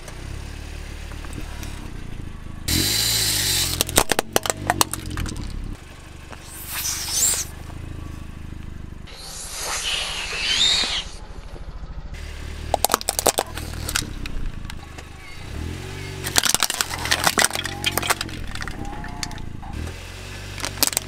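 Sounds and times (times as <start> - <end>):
low wavering hum: 1.3 - 19.9
tyre crushing plastic toys: 3.7 - 5.6, 12.7 - 14.2, 16.2 - 19.4, 20.6 - 21.0
air squealing from rubber toy: 6.4 - 7.5, 9.1 - 11.2.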